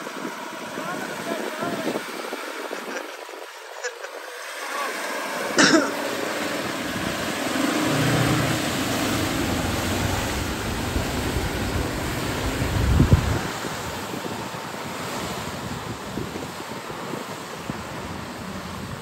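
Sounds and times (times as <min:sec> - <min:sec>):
tyres churning through wet mud: 0:00.0 - 0:19.0
mud splashing and spraying: 0:00.1 - 0:19.0
car engine running under load: 0:05.6 - 0:19.0.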